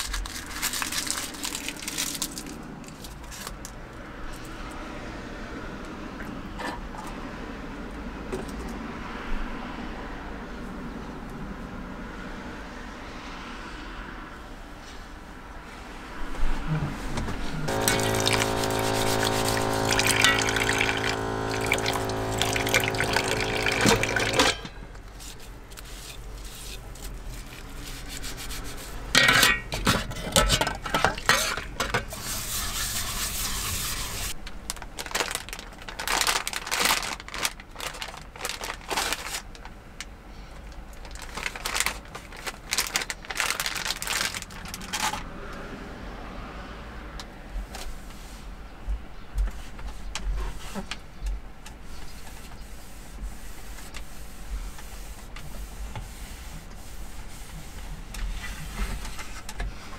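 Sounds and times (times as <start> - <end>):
tap water running: 17.7 - 24.6.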